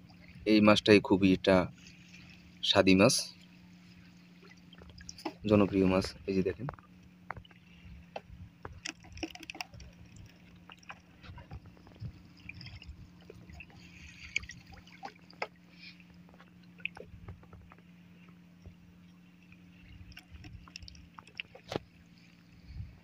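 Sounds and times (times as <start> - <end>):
water dripping off net: 8.8 - 11.0.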